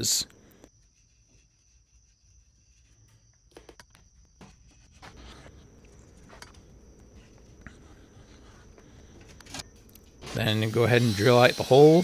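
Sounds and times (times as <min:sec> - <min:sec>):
marker scratching on metal: 0:00.8 - 0:03.2, 0:07.2 - 0:09.6.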